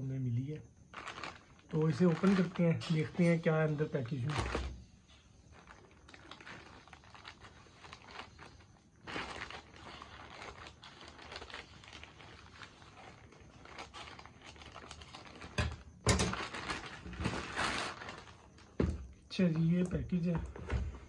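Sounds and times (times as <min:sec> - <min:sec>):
plastic bag rustling: 0:00.9 - 0:19.1
scissors cutting plastic bag: 0:09.0 - 0:18.3.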